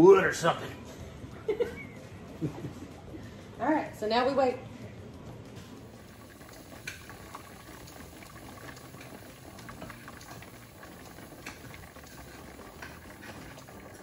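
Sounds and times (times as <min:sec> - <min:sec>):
pressure canner bubbling: 0:05.8 - 0:14.0.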